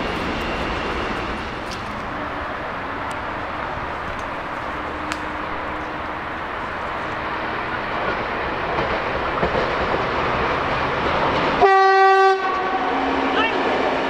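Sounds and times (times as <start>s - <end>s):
diesel locomotive engine and wheels: 0.0s - 14.0s
train horn blast: 11.6s - 14.0s.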